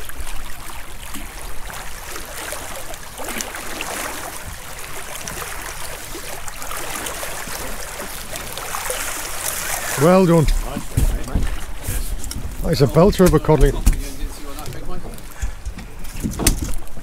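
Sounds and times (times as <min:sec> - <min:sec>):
water lapping against boat: 0:00.0 - 0:17.0
wind buffeting microphone: 0:09.9 - 0:17.0.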